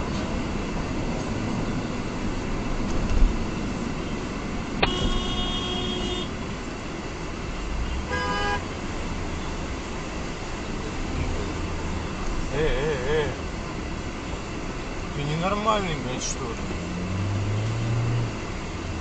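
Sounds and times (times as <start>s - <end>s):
road noise inside car: 0.0s - 19.0s
vehicle horn honking: 4.8s - 6.4s, 7.9s - 8.7s.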